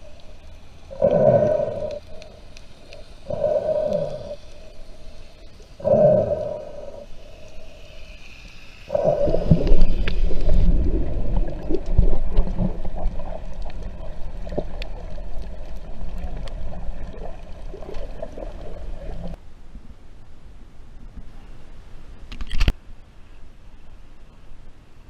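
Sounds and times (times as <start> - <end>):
underwater bubbling: 0.0 - 19.4
muffled underwater rumbling: 8.9 - 19.4.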